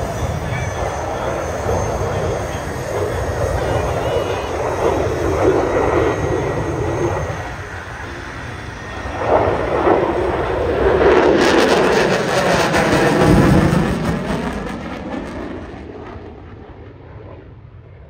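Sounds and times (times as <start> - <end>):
jet engines roaring with crackle: 0.0 - 18.0.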